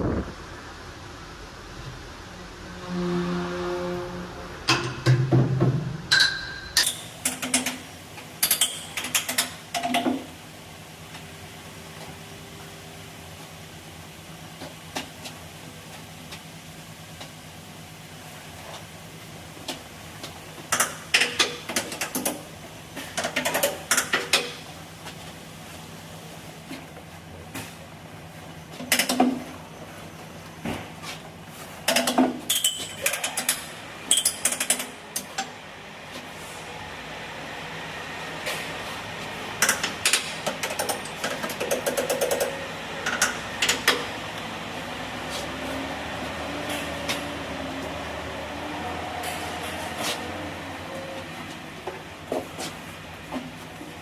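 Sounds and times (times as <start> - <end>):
steady low hum: 0.0 - 21.1
mechanical hum: 0.0 - 54.0.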